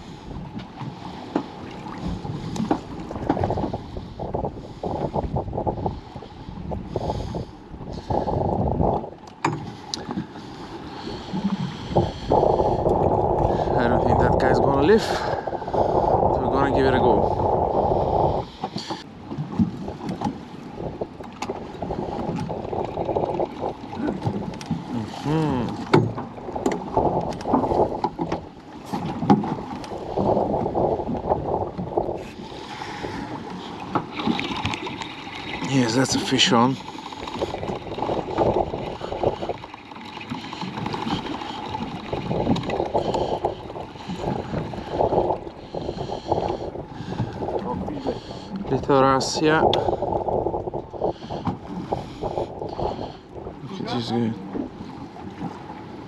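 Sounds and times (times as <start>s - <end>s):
water lapping against boat hull: 0.0s - 56.0s
wind buffeting microphone: 0.0s - 56.0s
small knocks on boat: 9.2s - 10.3s, 18.6s - 20.4s, 25.8s - 29.9s.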